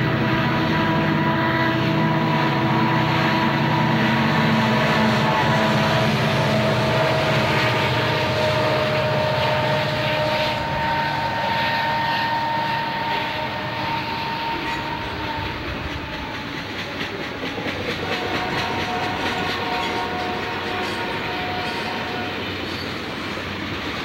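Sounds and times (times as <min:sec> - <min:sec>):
diesel locomotives running by: 0:00.0 - 0:24.0
freight train passing: 0:00.0 - 0:24.0
wheels clicking over rail joints: 0:14.6 - 0:24.0.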